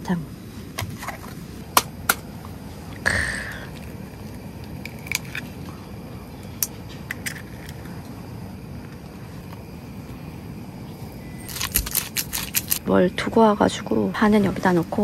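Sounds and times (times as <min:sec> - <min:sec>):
packaging rustle: 0:11.4 - 0:12.8.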